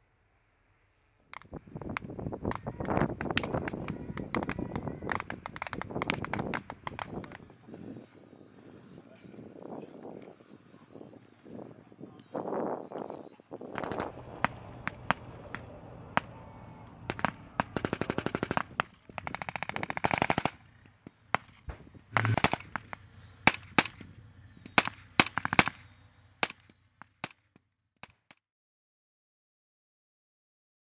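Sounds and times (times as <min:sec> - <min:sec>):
automatic rifle bursts: 0:17.1 - 0:27.4
rifle blank shots: 0:17.1 - 0:27.4.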